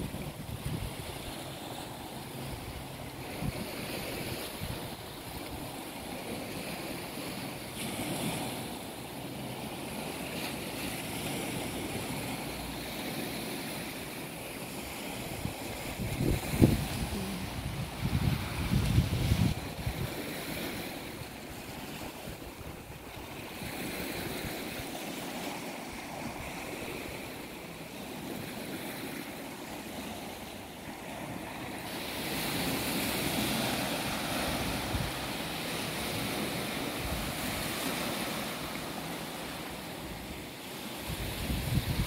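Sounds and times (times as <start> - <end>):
wind buffeting microphone: 0.0 - 1.4, 14.6 - 25.2, 31.9 - 38.7, 40.0 - 42.0
sea waves on rocky shore: 0.0 - 42.0.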